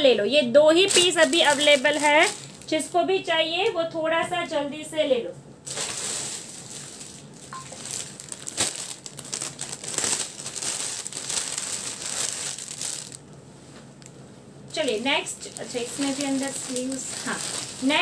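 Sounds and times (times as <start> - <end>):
plastic packet crinkling: 0.8 - 2.7, 5.7 - 13.2, 14.7 - 18.0.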